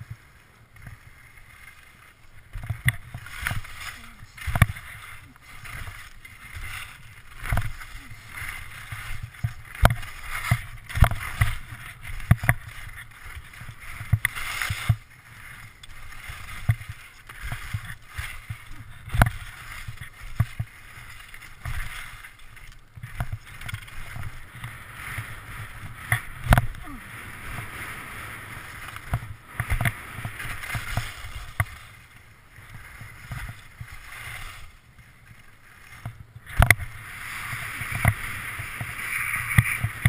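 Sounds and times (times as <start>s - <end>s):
skis scraping over packed snow: 0.0s - 40.0s
sharp knocks of ski poles: 2.6s - 3.8s, 26.1s - 26.8s.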